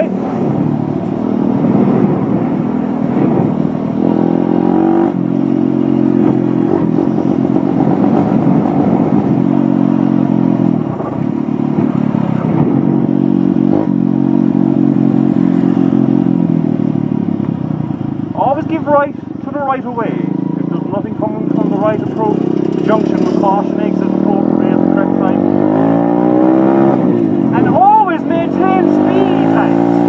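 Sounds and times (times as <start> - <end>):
dirt bike engine running: 0.0 - 30.0.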